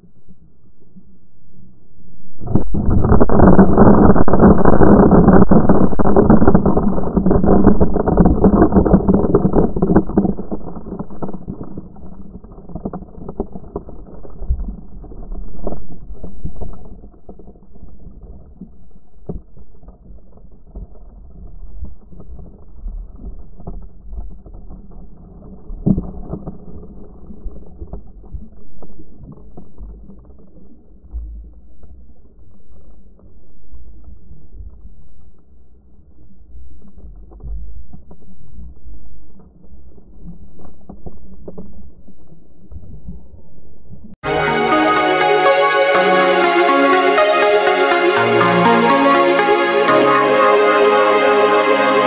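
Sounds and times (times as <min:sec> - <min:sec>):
muffled underwater surf rush: 0:01.0 - 0:30.6.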